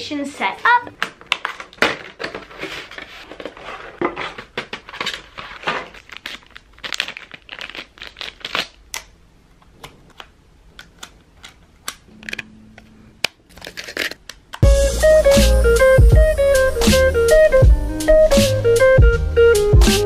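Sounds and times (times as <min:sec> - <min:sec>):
packaging rustling and crinkling: 0:01.0 - 0:09.1, 0:13.5 - 0:14.4.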